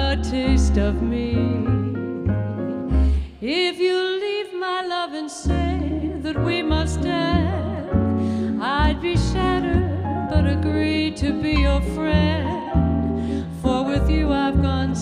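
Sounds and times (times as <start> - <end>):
woman singing: 0.0 - 1.9, 3.2 - 12.8, 13.4 - 15.0
acoustic guitar: 0.0 - 3.3
plucked double bass: 0.0 - 3.3, 5.5 - 15.0
keyboard: 5.5 - 15.0.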